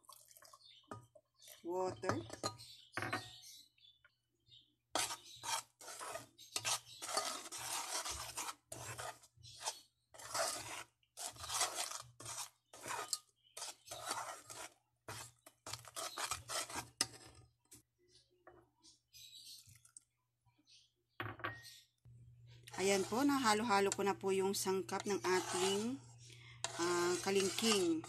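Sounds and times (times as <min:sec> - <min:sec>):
spoon scraping batter in metal pot: 0:04.9 - 0:17.6, 0:22.5 - 0:28.0.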